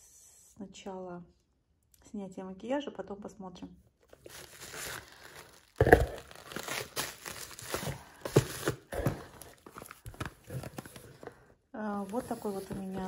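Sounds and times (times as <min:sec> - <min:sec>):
bubble wrap crinkling: 0:04.1 - 0:11.3, 0:11.9 - 0:13.0
bottles and boxes rummaged in cardboard box: 0:04.2 - 0:13.0.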